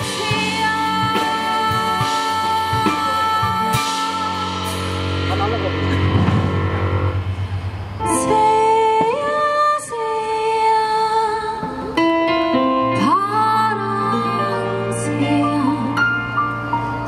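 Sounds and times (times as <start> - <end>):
woman singing long held notes: 0.0 - 4.9, 8.0 - 12.0
amplified band with guitar: 0.0 - 10.4, 11.4 - 17.0.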